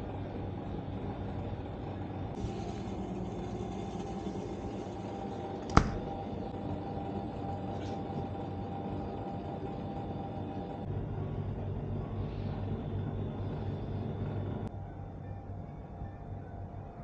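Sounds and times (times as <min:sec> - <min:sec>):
drink coolers humming: 0:00.0 - 0:11.3.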